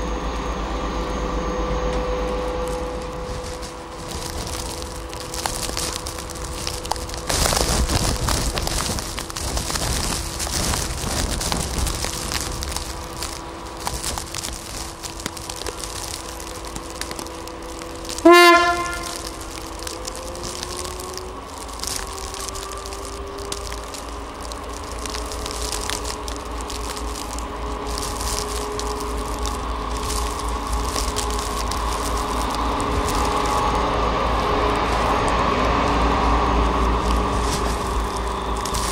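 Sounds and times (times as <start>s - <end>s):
diesel locomotive engine drone: 0.0s - 38.9s
locomotive horn blast: 18.2s - 19.3s.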